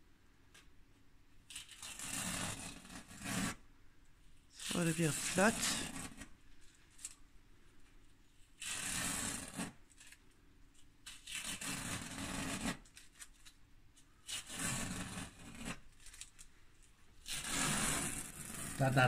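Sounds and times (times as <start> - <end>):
masking tape ripping: 1.5 - 3.6, 4.6 - 6.3, 8.5 - 10.2, 11.0 - 13.6, 14.2 - 16.5, 17.2 - 19.0.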